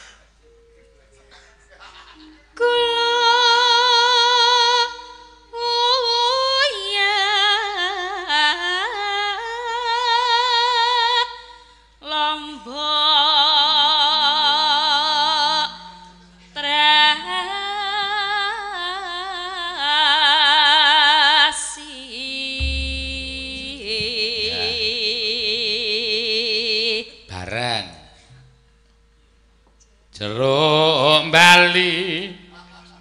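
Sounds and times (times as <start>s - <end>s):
woman singing through a microphone: 2.6s - 11.4s, 12.0s - 27.2s.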